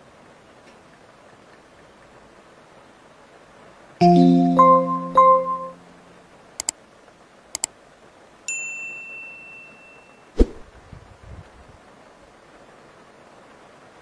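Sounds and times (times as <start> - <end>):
notification bell ding: 4.0 - 5.9.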